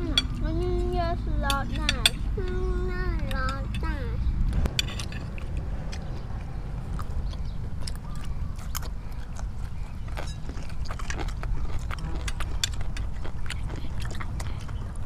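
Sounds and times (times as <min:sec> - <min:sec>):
low rumble: 0:02.2 - 0:09.8
chewing: 0:04.8 - 0:15.0.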